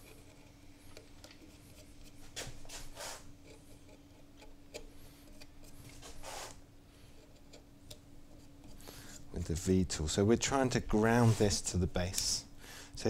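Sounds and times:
carving tool scratching wood: 0.0 - 6.6, 11.0 - 11.7.

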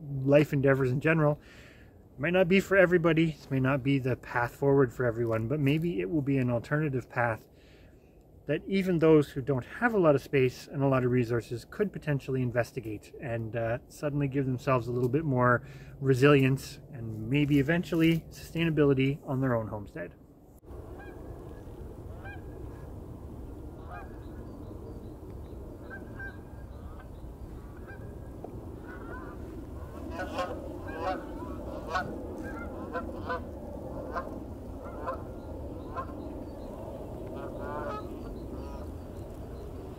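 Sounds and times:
birds calling: 20.8 - 39.9.

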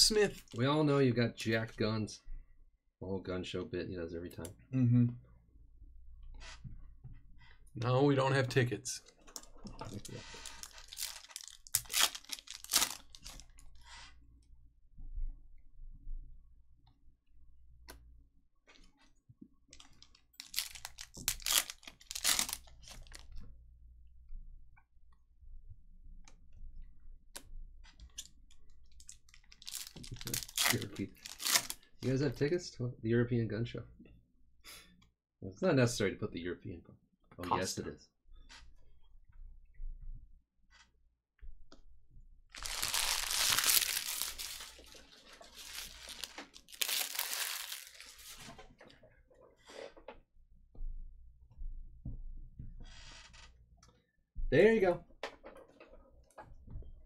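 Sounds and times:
foil wrapper crinkling and tearing: 9.9 - 13.6, 19.8 - 23.3, 29.0 - 31.9, 42.6 - 48.5.

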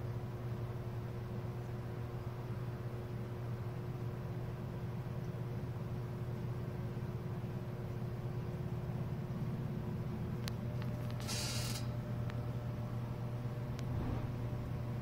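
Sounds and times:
low mechanical hum: 0.0 - 15.0
short hiss: 11.2 - 11.9.

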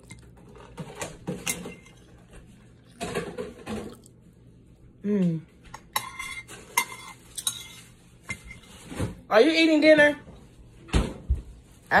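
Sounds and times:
person humming mm: 5.0 - 5.5
metal fork scraping a plate: 5.9 - 8.7.

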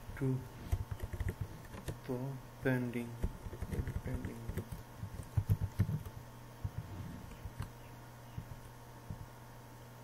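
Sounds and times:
typing on a computer keyboard: 0.7 - 2.0, 3.2 - 6.1.

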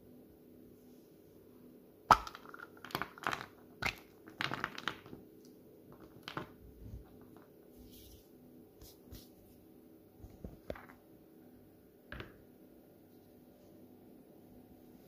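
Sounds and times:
chocolate cracking: 2.1 - 7.6
pieces clicking onto table: 12.1 - 12.4.

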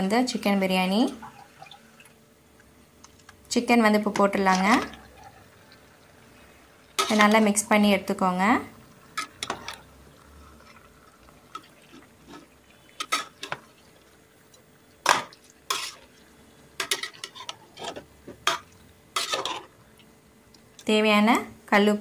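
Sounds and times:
metal spatula scraping pot: 7.0 - 7.6, 9.1 - 9.9, 11.5 - 13.6, 15.7 - 16.2, 16.8 - 19.7.

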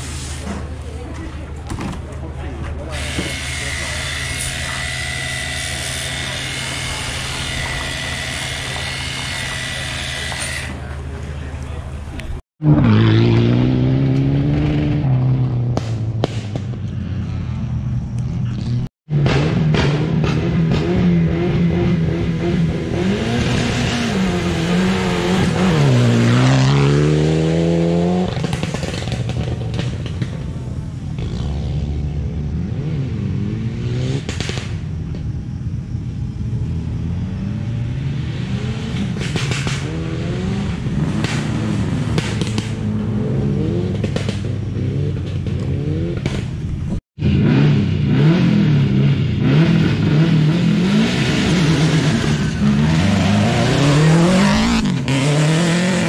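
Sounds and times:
car revving unevenly: 0.0 - 56.0
rally car engine accelerating: 2.2 - 16.6, 18.5 - 30.5, 36.6 - 56.0.

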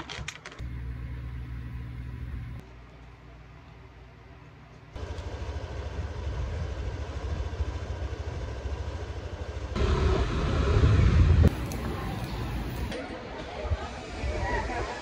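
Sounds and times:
motorcycle engine running: 5.0 - 12.9.

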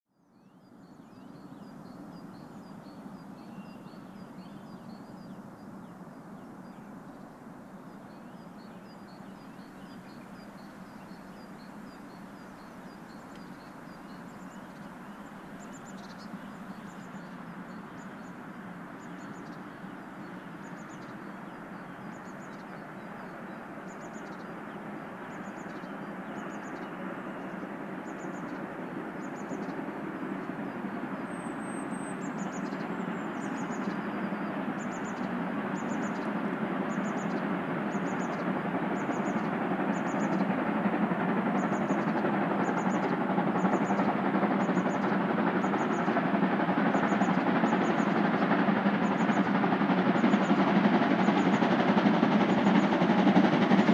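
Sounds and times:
small birds chirping: 0.2 - 40.6.

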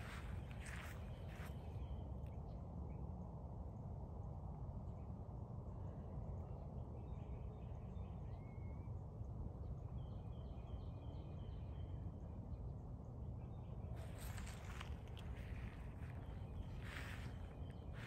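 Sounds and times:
birds chirping: 0.0 - 1.9, 14.0 - 18.0
low background rumble: 0.0 - 18.0.

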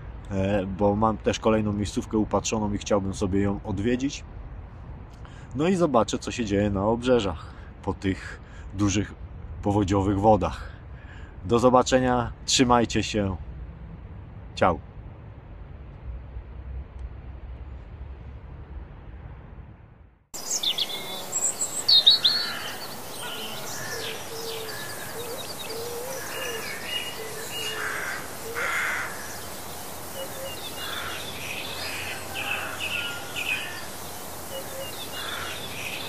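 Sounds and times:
steady outdoor hiss: 0.0 - 36.0
songbirds chirping and trilling: 20.4 - 36.0.

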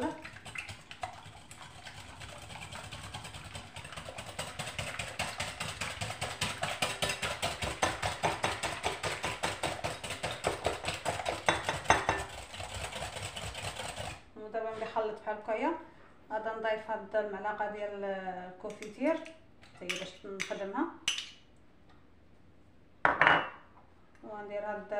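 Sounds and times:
wire whisk beating in a bowl: 0.0 - 14.2.

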